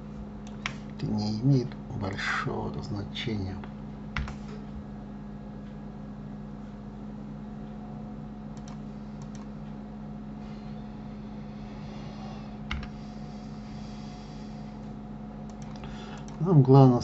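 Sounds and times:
low electrical hum: 0:00.0 - 0:17.0
faint computer clicks: 0:08.5 - 0:09.5, 0:15.4 - 0:16.5.

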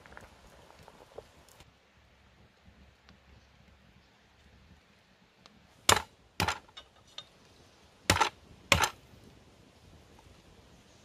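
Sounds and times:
sharp chopping strikes: 0:05.9 - 0:06.7, 0:08.1 - 0:09.0.

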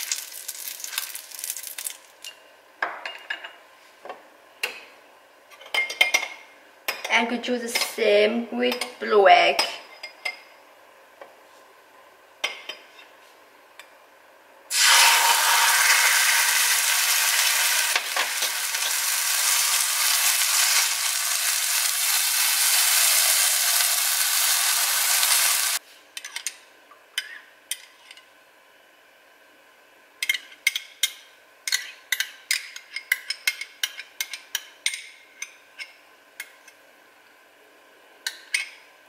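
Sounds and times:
egg sizzling in frying pan: 0:00.0 - 0:02.2, 0:14.7 - 0:25.8.

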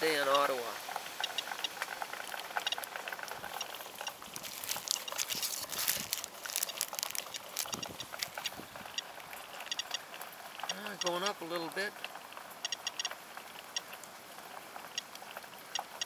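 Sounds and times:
rain pattering on grass: 0:00.0 - 0:16.0
plastic bag crinkling: 0:02.1 - 0:08.9.

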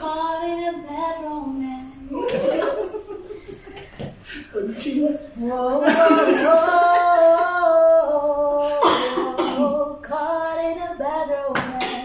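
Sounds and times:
woman singing long held notes: 0:04.8 - 0:12.0.

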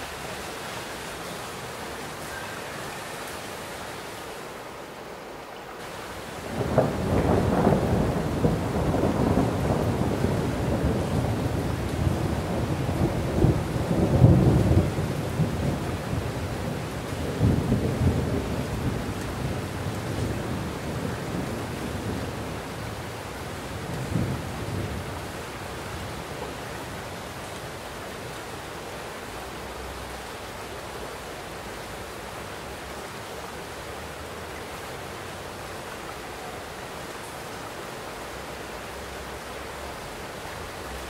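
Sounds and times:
heavy rain falling: 0:00.0 - 0:41.0
rolling thunder: 0:06.4 - 0:23.1, 0:23.7 - 0:25.4.

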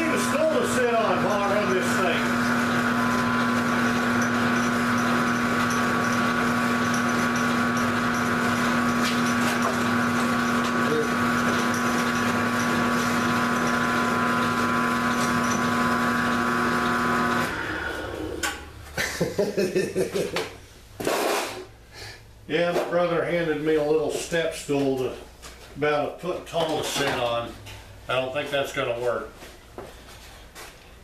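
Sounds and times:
milling machine humming and whining: 0:00.0 - 0:18.6.

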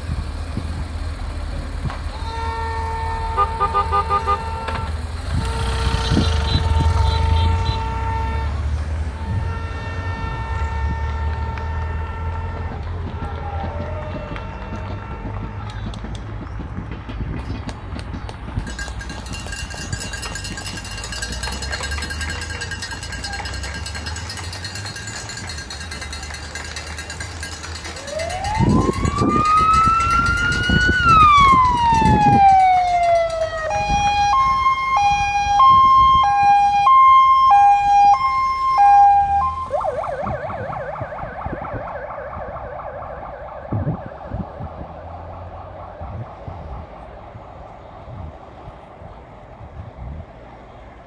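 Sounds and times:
electronic siren: 0:28.0 - 0:47.2.

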